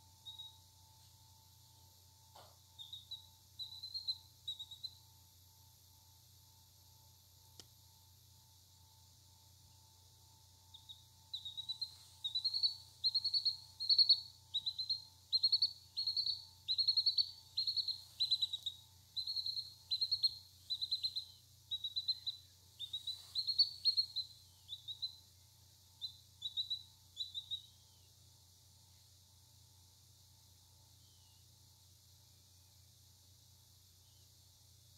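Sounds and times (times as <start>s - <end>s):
chick peeping: 2.4s - 5.0s, 10.7s - 25.2s, 26.0s - 27.7s.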